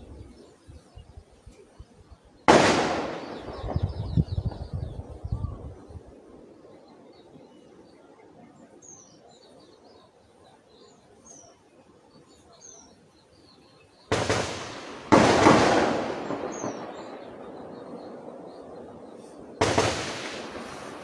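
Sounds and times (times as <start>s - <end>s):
birds chirping: 0.0s - 21.0s
gunshots with rolling echo: 2.5s - 5.2s, 14.1s - 21.0s.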